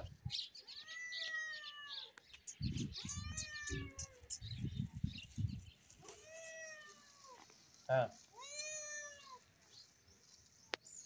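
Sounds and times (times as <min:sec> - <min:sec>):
cat meowing: 0:00.7 - 0:02.1, 0:03.0 - 0:04.3, 0:08.4 - 0:09.4.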